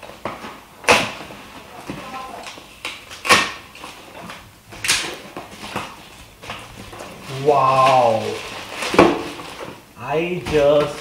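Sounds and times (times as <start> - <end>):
rustling and scraping of cardboard: 5.0 - 9.8.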